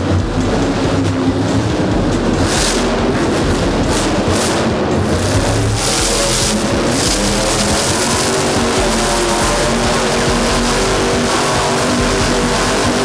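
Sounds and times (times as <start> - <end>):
monster truck engine revving: 0.0 - 13.0
music over sound system: 0.0 - 13.0.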